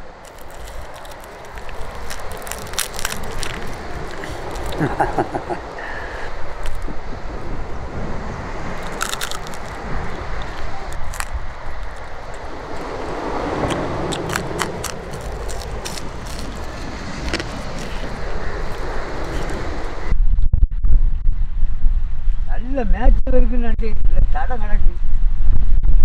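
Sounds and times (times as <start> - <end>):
crab shell crunching: 0.0 - 20.1
outdoor background noise: 0.0 - 20.2.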